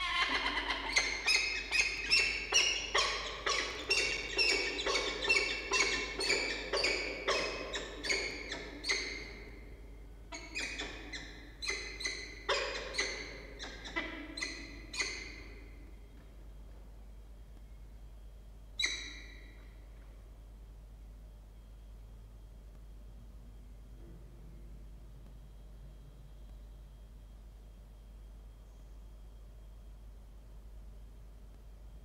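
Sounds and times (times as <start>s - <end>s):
falcons calling: 0.0s - 9.6s.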